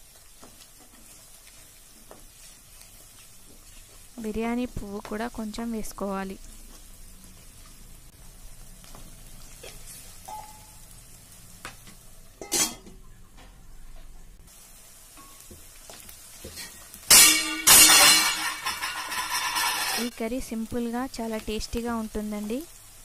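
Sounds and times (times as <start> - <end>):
onions sizzling in a pan: 0.0 - 23.0
spatula scraping in pan: 16.3 - 20.1
sharp clatter: 17.1 - 20.1.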